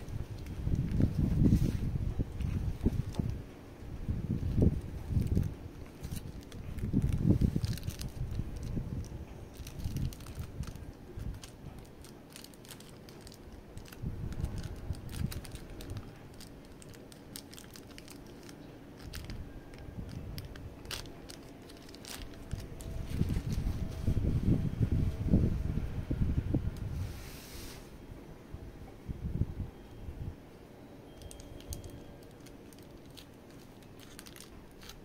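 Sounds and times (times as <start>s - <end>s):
packaging crinkling and rustling: 0.0s - 3.4s, 4.2s - 24.3s, 31.1s - 35.0s.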